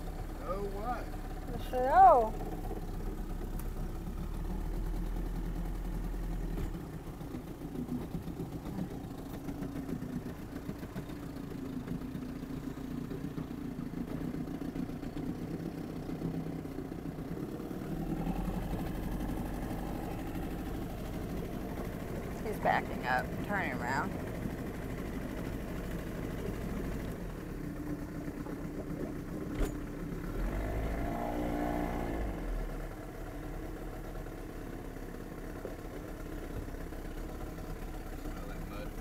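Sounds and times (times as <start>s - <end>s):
boat engine idling: 0.0s - 39.0s.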